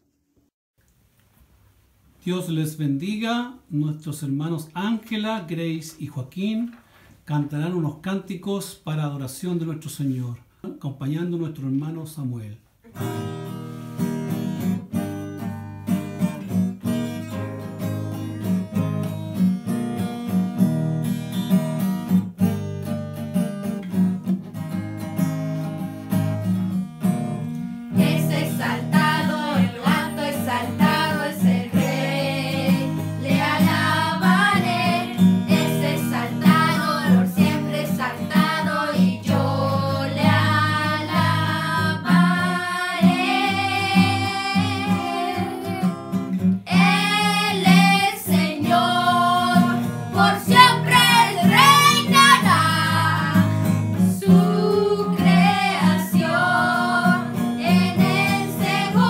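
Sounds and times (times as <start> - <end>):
acoustic guitar strumming: 12.9 - 59.0
children singing in unison: 27.9 - 45.9, 46.7 - 59.0.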